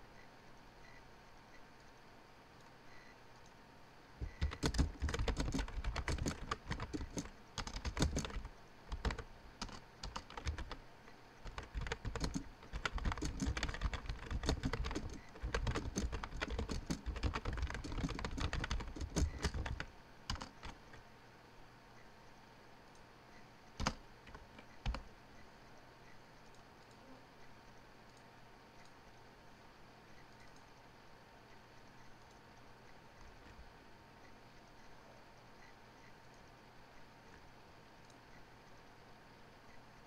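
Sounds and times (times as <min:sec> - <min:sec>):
computer keyboard typing: 0:04.2 - 0:10.8, 0:11.4 - 0:21.0, 0:23.7 - 0:25.1.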